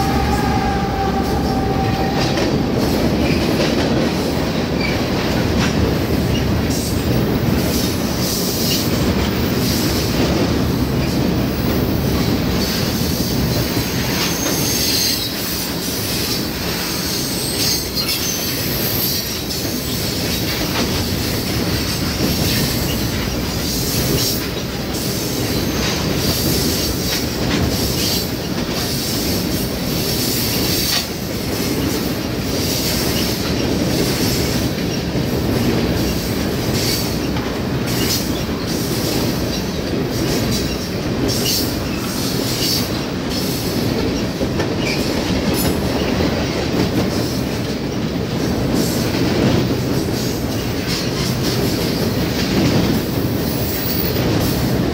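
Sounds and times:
high-pitched wheel squeal: 0:00.0 - 0:03.4.

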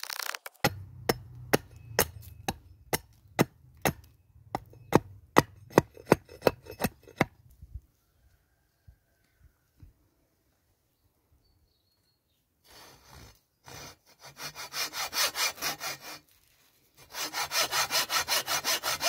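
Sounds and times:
axe chopping wood: 0:00.6 - 0:07.4.

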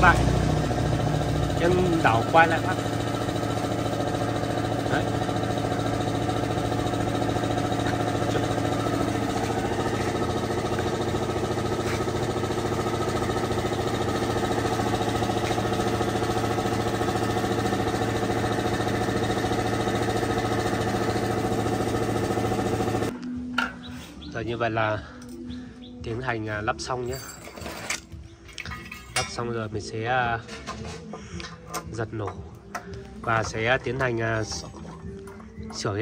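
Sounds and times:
engine droning: 0:00.0 - 0:26.8.

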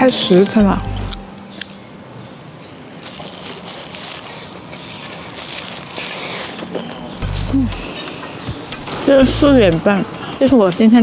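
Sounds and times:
street background noise: 0:00.0 - 0:11.0
quiet chewing: 0:00.4 - 0:09.1.

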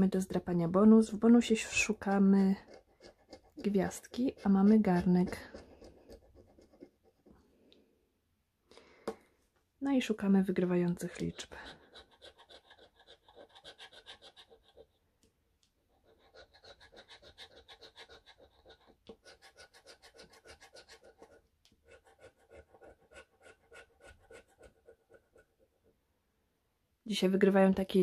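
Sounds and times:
tool scraping scratch card: 0:01.6 - 0:07.4, 0:11.0 - 0:15.0, 0:15.9 - 0:25.7.

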